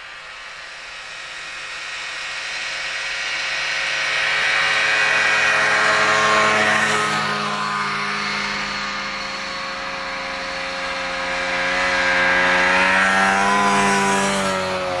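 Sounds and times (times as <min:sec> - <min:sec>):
snowmobile engine passing by: 0:00.0 - 0:15.0.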